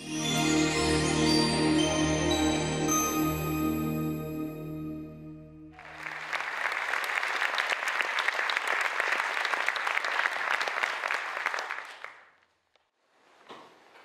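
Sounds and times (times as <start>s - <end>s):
music: 0.0s - 6.2s
audience applauding: 5.8s - 12.4s.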